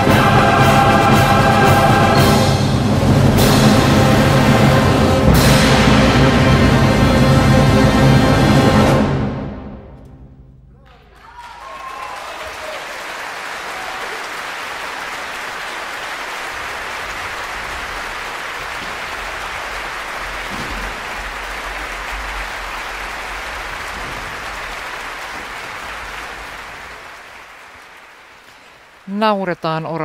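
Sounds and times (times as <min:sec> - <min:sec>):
audience applauding: 0:10.8 - 0:29.8.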